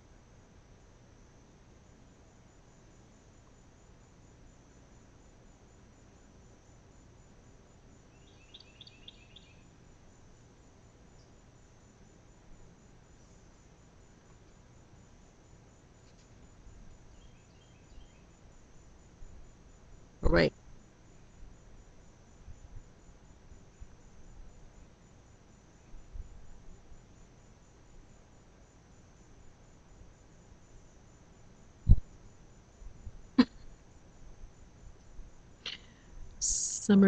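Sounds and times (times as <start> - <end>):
faint insect chirps: 0.0 - 37.0
high-pitched insect chirring: 8.2 - 9.7, 35.7 - 37.0.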